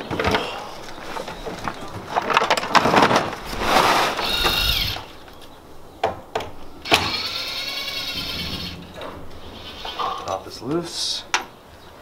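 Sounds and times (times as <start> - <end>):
cordless drill motor whining: 4.2 - 5.1, 6.8 - 8.7.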